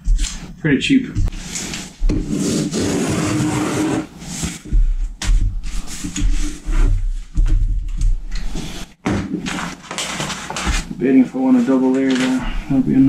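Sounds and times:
paper scraping across wooden table: 1.3s - 4.6s.

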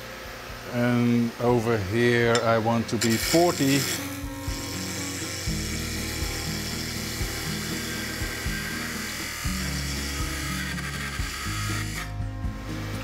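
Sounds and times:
lathe tool cutting wood: 3.0s - 12.2s
background music with bass: 3.4s - 13.0s.

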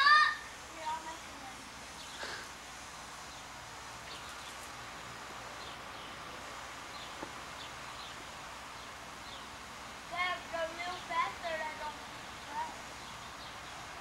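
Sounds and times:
low outdoor hiss: 0.0s - 14.0s.

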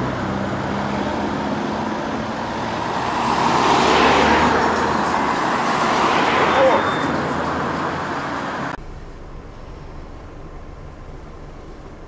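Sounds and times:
car passing by: 0.0s - 8.8s
road traffic: 0.0s - 12.0s.

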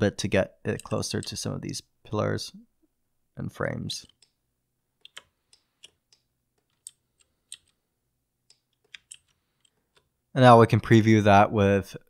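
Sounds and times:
keyboard and mouse clicks: 4.0s - 4.4s, 5.0s - 7.8s, 8.4s - 10.1s.

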